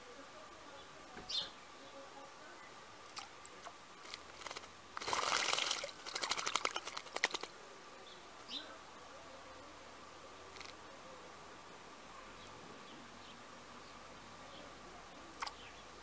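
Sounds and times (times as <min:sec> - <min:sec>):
bird splashing in water: 0:03.0 - 0:07.6, 0:15.3 - 0:15.6
water drips: 0:03.1 - 0:07.5, 0:15.3 - 0:15.6
wing-beat splashes: 0:03.1 - 0:07.6.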